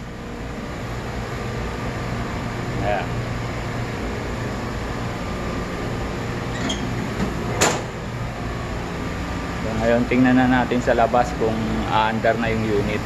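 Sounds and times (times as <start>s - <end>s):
electrical room hum: 0.0s - 13.0s.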